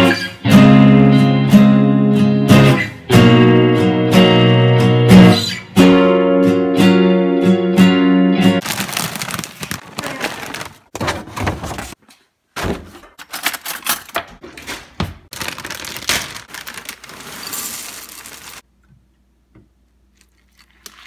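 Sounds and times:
plastic bag crinkling: 8.6s - 11.0s, 15.3s - 18.6s
cereal poured into ceramic bowl: 17.0s - 18.6s.

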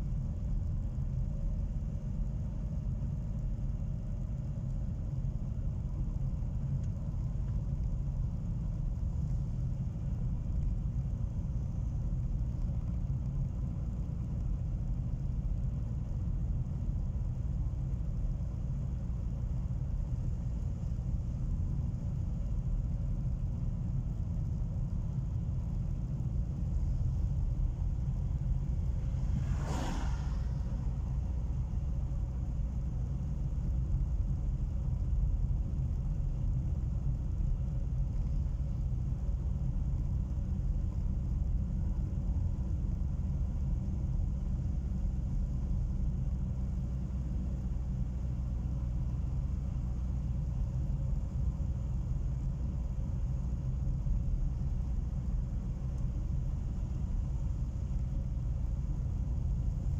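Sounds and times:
car engine and tyres rumbling: 0.0s - 59.9s
brief whoosh: 28.5s - 32.2s.

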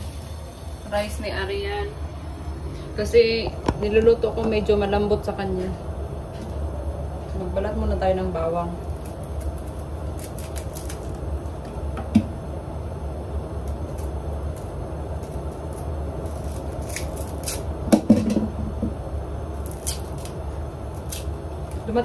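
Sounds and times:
steady low hum: 0.0s - 22.0s
papery garlic skins crackling: 8.3s - 11.9s, 13.3s - 18.0s, 19.4s - 22.0s.

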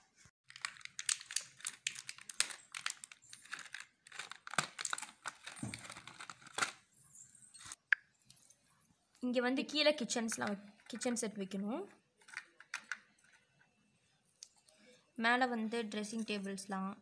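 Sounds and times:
plastic packaging crinkling: 0.4s - 6.9s.

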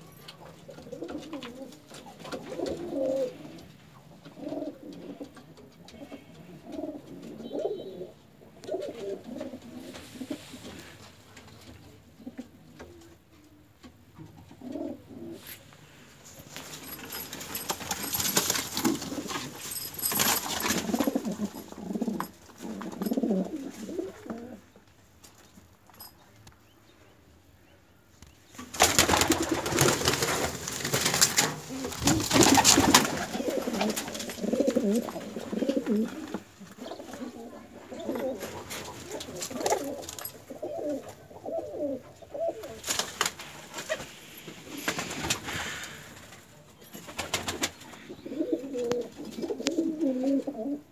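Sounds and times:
pigeons cooing: 0.1s - 11.1s, 14.3s - 15.7s, 16.8s - 24.8s, 28.8s - 46.2s, 47.0s - 50.9s
pigeon flapping wings: 16.6s - 21.4s, 28.6s - 35.7s, 42.8s - 46.4s, 47.0s - 47.8s.

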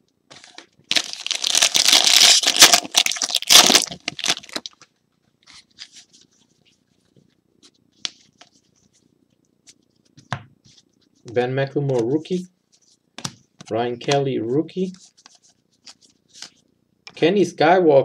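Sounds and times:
foil wrapper tearing and crinkling: 0.4s - 4.8s.

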